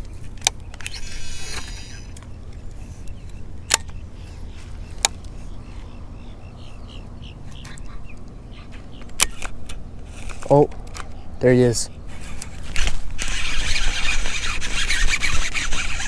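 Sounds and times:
fishing reel spool whirring: 0.7 - 3.2, 12.1 - 16.0
fishing reel clicking: 12.2 - 16.0.

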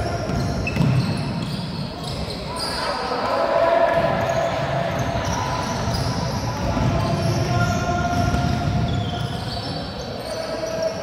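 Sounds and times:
basketball bounces: 0.0 - 2.3, 3.9 - 9.9
shoe squeaks: 0.0 - 3.1, 4.2 - 11.0.

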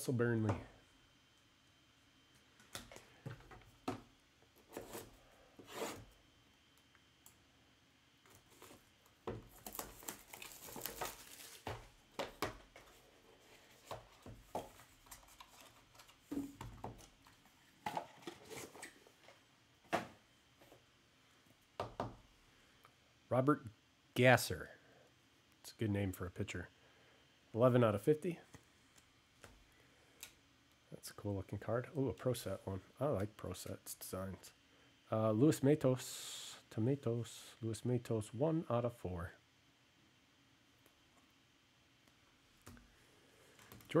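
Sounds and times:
wrapping tearing and crinkling: 9.5 - 12.0.

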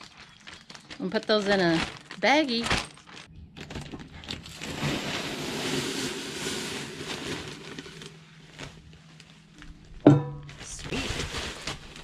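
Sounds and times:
dry flakes pouring: 4.5 - 8.9.

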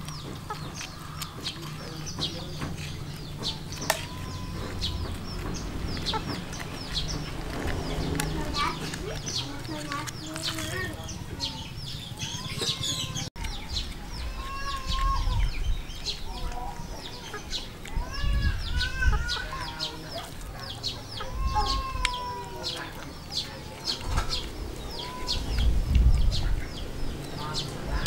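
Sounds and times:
birds chirping: 0.0 - 28.0
chickens clucking: 0.0 - 28.0
low rumble: 2.9 - 14.3.

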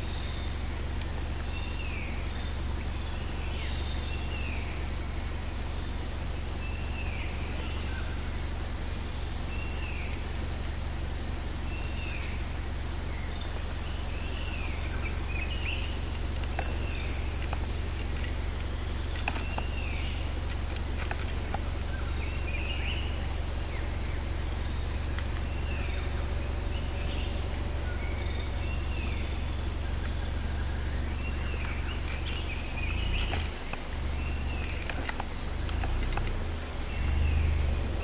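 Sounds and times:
high insect drone: 0.0 - 38.0
bird calling: 13.1 - 38.0.

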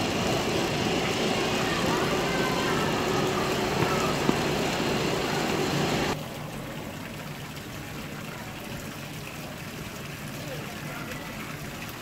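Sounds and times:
crowd hubbub: 0.0 - 6.2
fountain water splashing: 0.0 - 12.0.

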